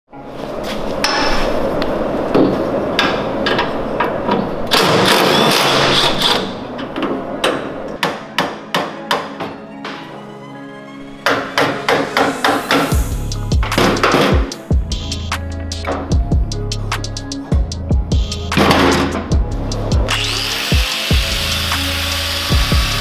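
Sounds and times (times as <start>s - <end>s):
background music: 4.7s - 23.0s
hammer striking metal: 11.2s - 14.5s.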